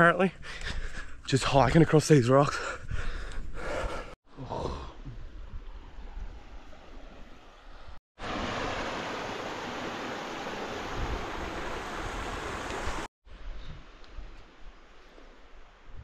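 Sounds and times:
rushing creek water: 6.0 - 13.1.

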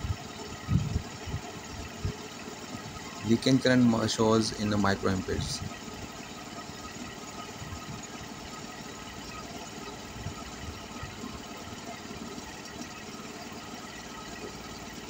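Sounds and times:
mechanical drone: 0.0 - 6.0.

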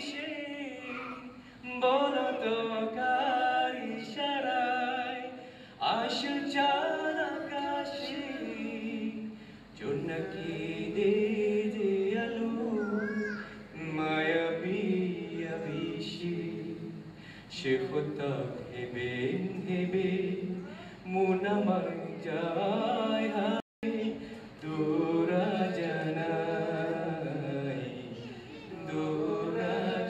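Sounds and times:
man singing unaccompanied: 0.0 - 30.0
singer breathing: 5.4 - 5.8, 9.3 - 9.7, 17.1 - 17.5.

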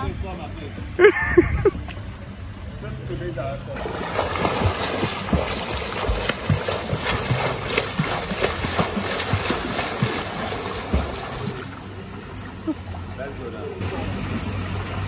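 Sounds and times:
swimmer splashing in water: 3.8 - 13.0.

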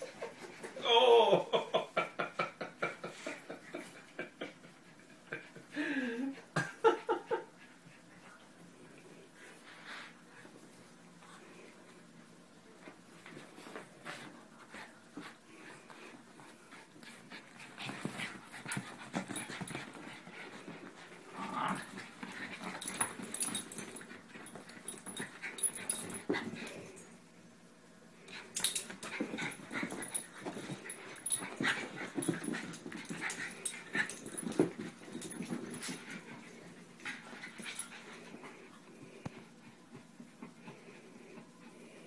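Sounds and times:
small dogs play-wrestling: 7.5 - 27.4, 28.2 - 42.0
dogs scuffling: 12.8 - 26.9, 28.4 - 38.7.

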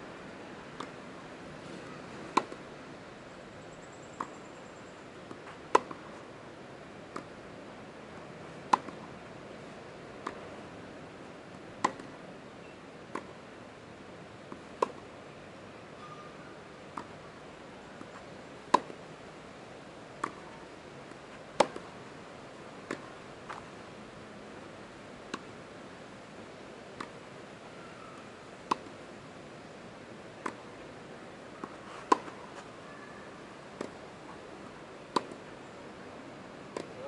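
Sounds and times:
steady background hiss: 0.0 - 37.0
tennis ball struck with rackets: 2.3 - 2.6, 5.3 - 6.1, 8.7 - 9.1, 11.8 - 12.2, 13.1 - 13.4, 14.8 - 15.0, 16.9 - 17.1, 18.0 - 19.0, 20.2 - 20.5, 21.5 - 21.9, 22.8 - 23.6, 25.3 - 25.5, 27.0 - 27.2, 28.7 - 29.0, 30.4 - 30.6, 31.6 - 32.4, 33.8 - 34.0, 35.1 - 35.4, 36.7 - 37.0
ball bounces: 21.6 - 21.9.

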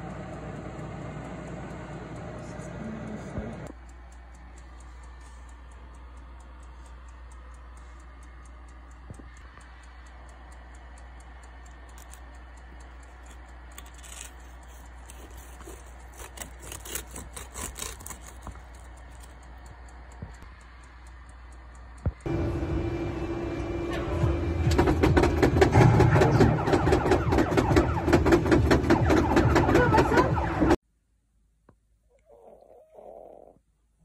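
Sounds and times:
knife sawing crisp chicken skin: 13.9 - 18.6.

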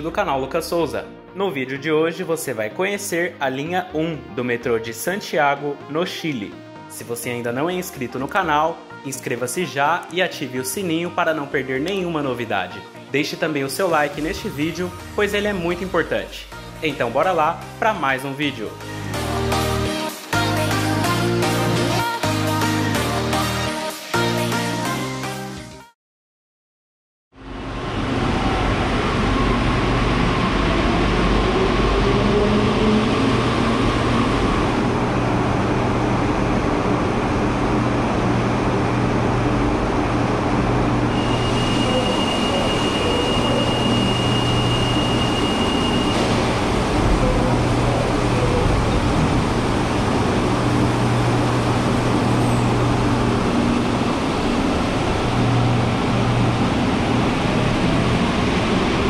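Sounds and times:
steady high tone: 27.4 - 37.6, 40.3 - 59.0
motor whine rising: 27.4 - 59.0
train running rush: 27.5 - 59.0.

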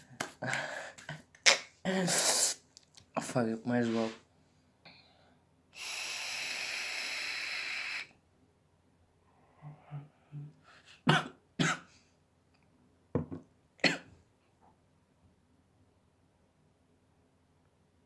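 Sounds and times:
breathy exhale: 4.9 - 8.1
person coughing: 11.0 - 11.9, 13.8 - 14.1.

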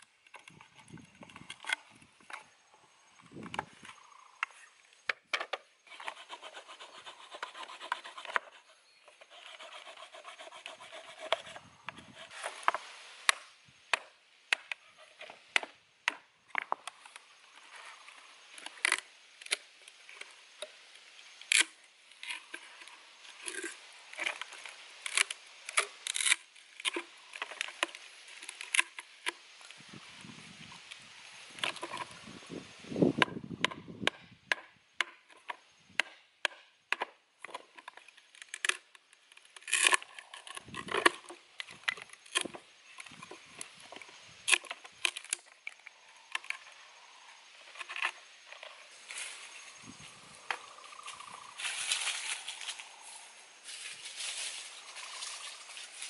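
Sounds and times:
scraping on bamboo: 5.4 - 30.0, 31.5 - 32.4, 35.0 - 52.9.

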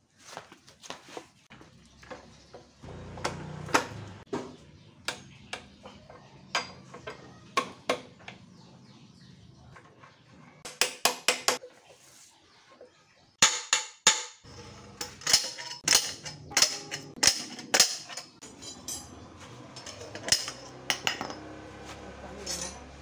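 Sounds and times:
metal tools clanking on metal: 2.0 - 8.4, 13.4 - 23.0.

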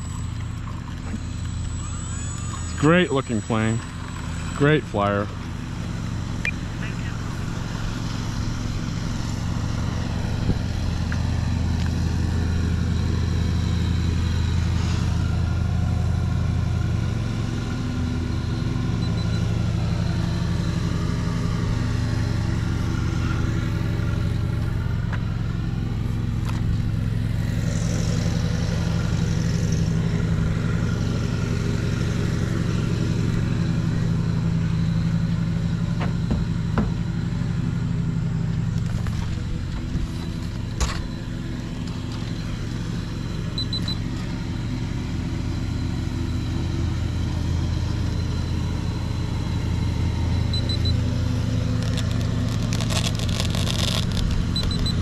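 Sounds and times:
higher tone shifting in pitch: 0.0 - 5.4
low motor drone: 0.0 - 55.0.

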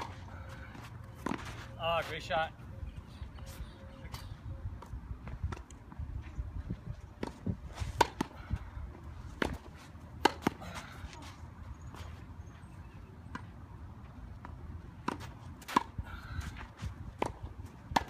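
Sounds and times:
tennis balls struck by rackets: 7.2 - 8.5, 9.2 - 11.2, 14.3 - 18.0.

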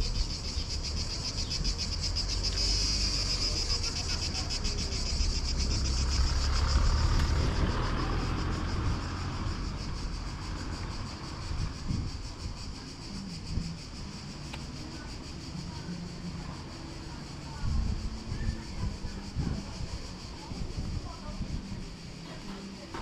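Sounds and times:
cicadas buzzing: 0.0 - 23.0
car passing: 2.0 - 12.7.

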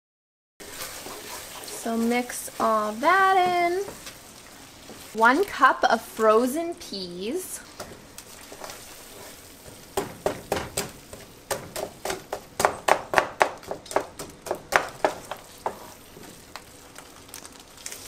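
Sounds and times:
wooden spoon stirring thick filling: 0.6 - 5.6, 7.6 - 16.9
spoon knocking and scraping pan: 2.9 - 4.2, 7.7 - 16.4.

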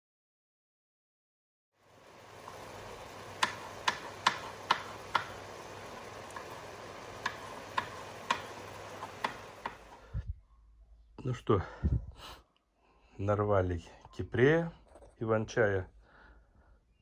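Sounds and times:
mushrooms sizzling in a pan: 1.8 - 10.0.

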